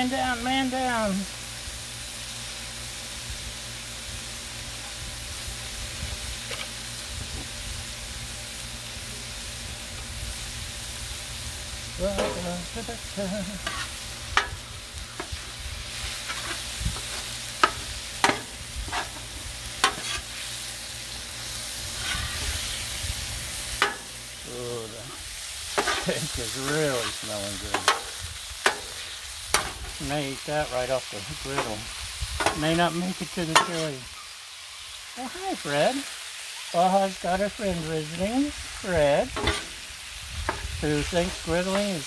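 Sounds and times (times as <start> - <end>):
meat sizzling on a griddle: 0.0 - 42.0
metal scraper clacking on griddle: 16.3 - 20.3, 23.8 - 24.1, 39.4 - 39.7.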